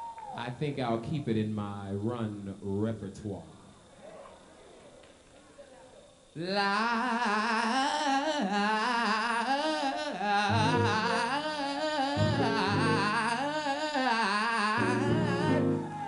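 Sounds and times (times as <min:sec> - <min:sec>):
man singing into microphone: 0:06.4 - 0:16.0
held instrument chords: 0:10.5 - 0:13.8, 0:14.8 - 0:16.0.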